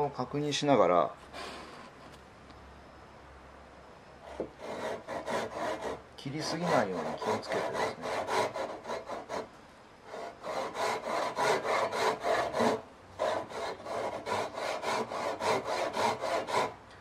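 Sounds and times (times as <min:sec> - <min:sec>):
hand saw rasping through wood: 0:04.2 - 0:09.5, 0:10.1 - 0:16.8.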